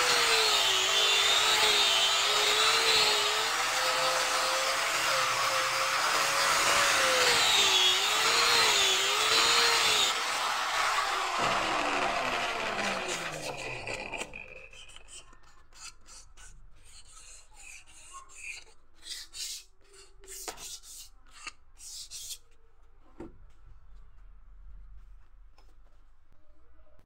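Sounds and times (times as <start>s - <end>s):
angle grinder winding down: 0.0s - 14.9s
hand tool scraping wood: 0.0s - 22.4s.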